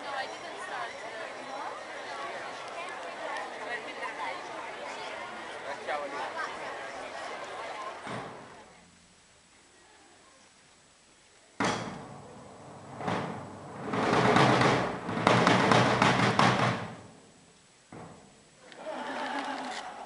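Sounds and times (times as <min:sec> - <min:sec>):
large wooden drums beaten: 0:13.0 - 0:17.1.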